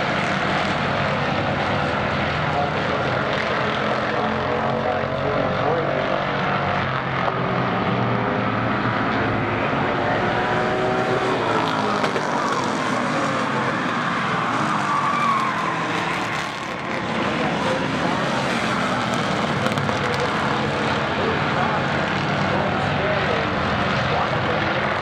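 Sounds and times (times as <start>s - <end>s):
race car engines passing: 0.0s - 25.0s.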